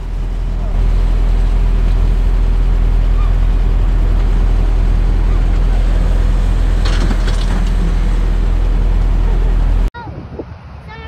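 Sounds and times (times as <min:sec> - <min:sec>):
off-road vehicle engines running: 0:00.0 - 0:11.0.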